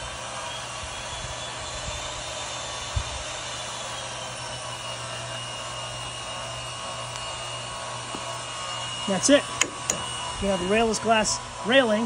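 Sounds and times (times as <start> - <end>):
cordless drill driving screw: 0.0 - 12.0.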